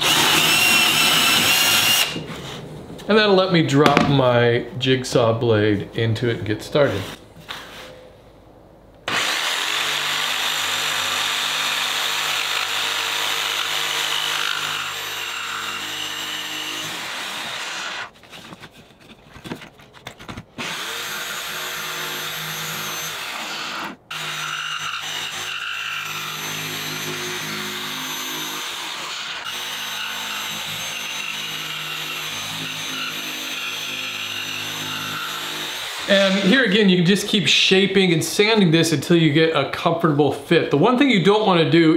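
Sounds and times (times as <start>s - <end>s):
jigsaw cutting wood: 0.0s - 2.2s, 9.1s - 18.1s, 20.6s - 36.5s.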